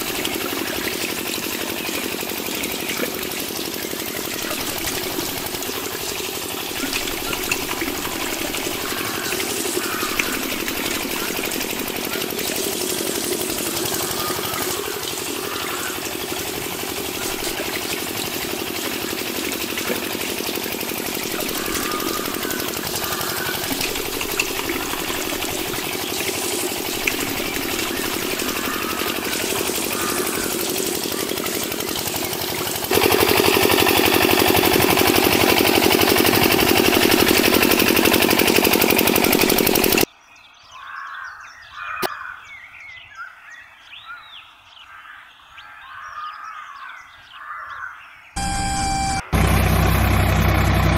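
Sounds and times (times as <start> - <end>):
birds chirping: 0.0 - 40.1, 45.4 - 50.9
electric water pump whirring: 0.0 - 40.1, 48.4 - 50.9
water jet spraying: 0.0 - 40.1.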